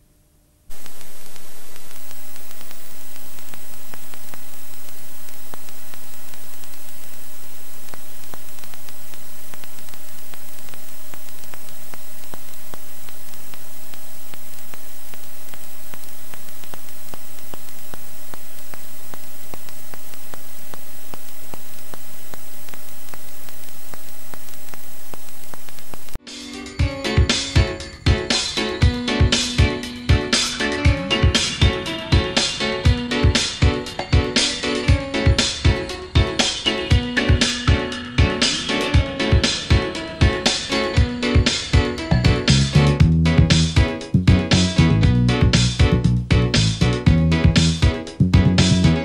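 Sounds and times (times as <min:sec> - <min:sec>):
faint hum tones: 0:00.0 - 0:26.2
static hiss: 0:00.5 - 0:26.2, 0:27.4 - 0:48.8.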